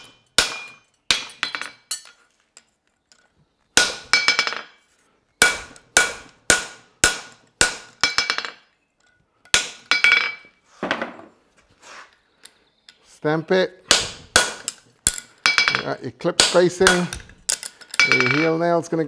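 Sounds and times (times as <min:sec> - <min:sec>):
hammer striking metal on anvil: 0:00.0 - 0:02.1, 0:05.4 - 0:08.6.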